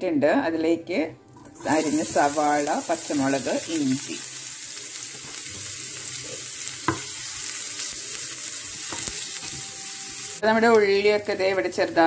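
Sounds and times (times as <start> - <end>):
vegetables sizzling in hot oil: 1.4 - 12.0.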